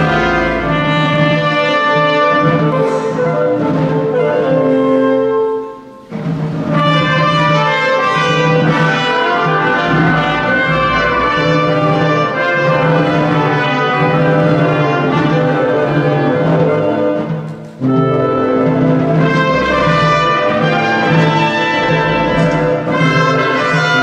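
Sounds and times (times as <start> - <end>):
brass fanfare: 0.0 - 24.0.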